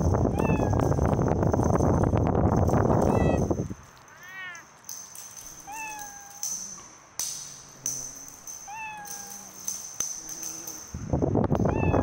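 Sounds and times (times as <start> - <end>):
cat meowing: 0.3 - 1.0, 3.0 - 3.4, 4.1 - 4.7, 5.6 - 6.5, 8.6 - 9.6, 11.7 - 12.0.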